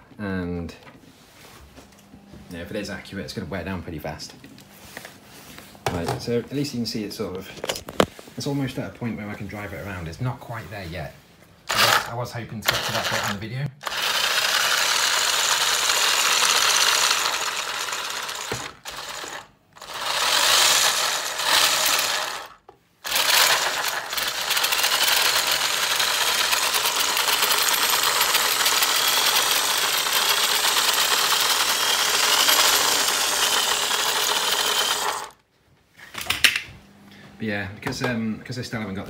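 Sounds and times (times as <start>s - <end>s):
drill motor spinning plastic gears: 11.7s - 35.4s.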